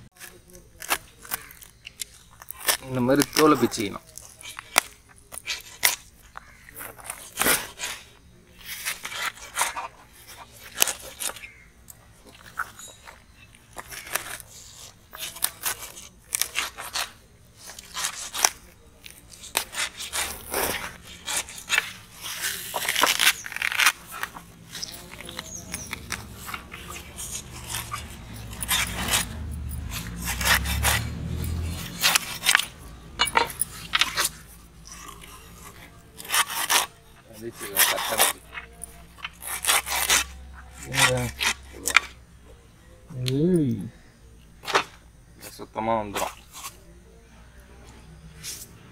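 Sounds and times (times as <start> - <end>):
fish skin tearing and crackling: 0.2 - 8.0, 10.6 - 32.8, 33.8 - 42.2.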